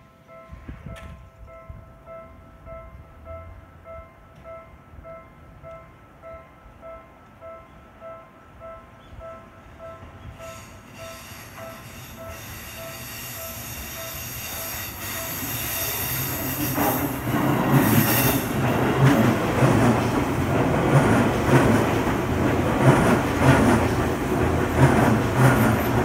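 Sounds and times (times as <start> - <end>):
electric train passing: 0.0 - 26.0
high hiss from rails: 10.4 - 17.2.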